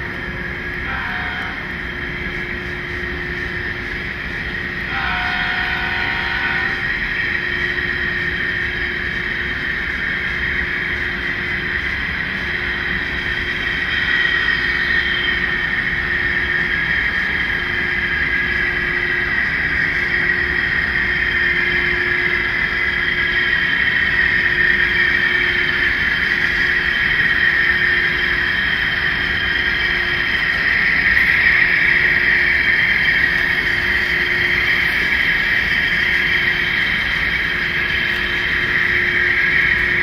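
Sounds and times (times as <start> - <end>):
model locomotive engine sound: 0.0 - 40.0.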